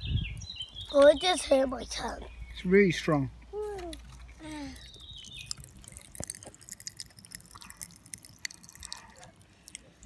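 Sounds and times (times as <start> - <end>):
popping candy crackling: 3.7 - 10.0.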